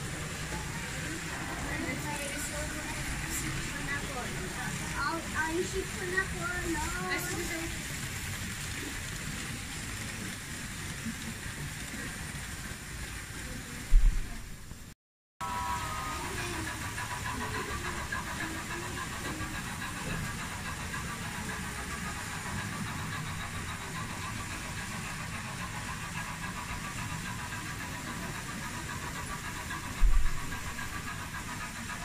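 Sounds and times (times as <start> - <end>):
model trains whirring and rattling: 0.0 - 32.0
low thump: 13.9 - 14.3.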